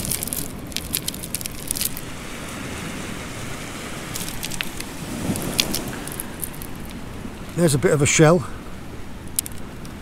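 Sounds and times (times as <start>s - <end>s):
pebbles clicking together: 0.0s - 2.1s, 4.2s - 7.0s, 9.4s - 9.6s.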